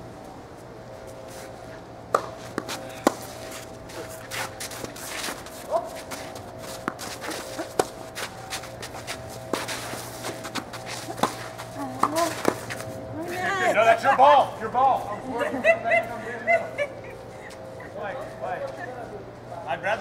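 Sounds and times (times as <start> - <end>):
tennis ball struck by rackets: 2.1 - 3.3, 10.5 - 12.8
footsteps on court: 2.2 - 13.4.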